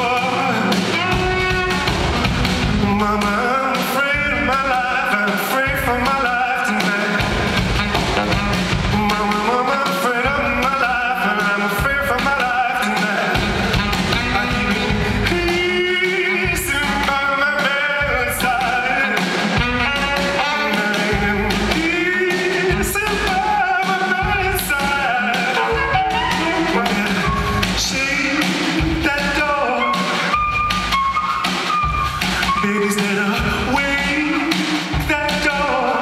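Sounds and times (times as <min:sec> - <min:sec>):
piano: 0:00.0 - 0:36.0
steady low beat: 0:07.4 - 0:09.4.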